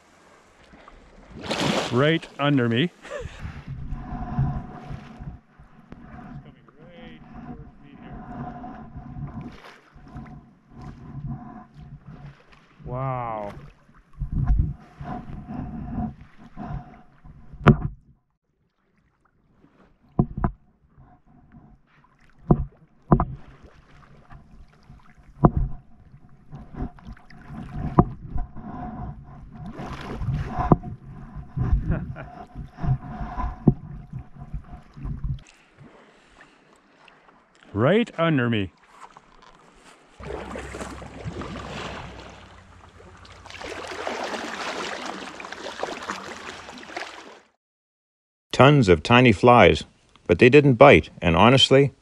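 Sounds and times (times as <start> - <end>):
water splashing: 0.0 - 17.6, 22.0 - 47.6
wind rumble on microphone: 3.1 - 18.0, 25.3 - 35.5
paddle knocking on board: 20.1 - 20.6, 22.4 - 23.5.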